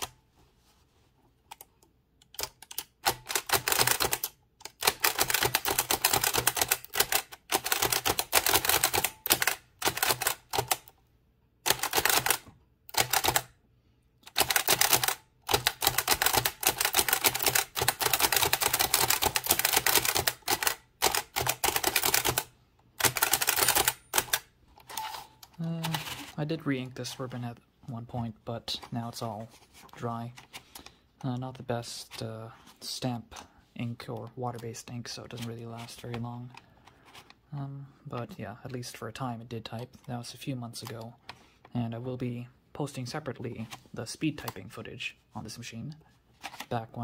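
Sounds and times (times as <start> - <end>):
typewriter keystroke clacks: 2.3 - 10.9, 11.7 - 13.5, 14.3 - 24.4.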